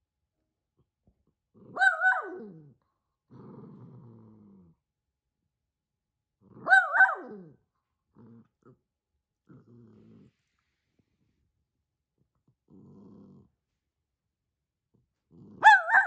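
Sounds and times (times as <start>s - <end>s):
dog growling: 1.5s - 4.8s, 6.4s - 10.8s, 12.2s - 13.6s, 15.3s - 16.0s
small dog barking: 1.7s - 2.6s, 6.6s - 7.6s, 15.6s - 16.0s.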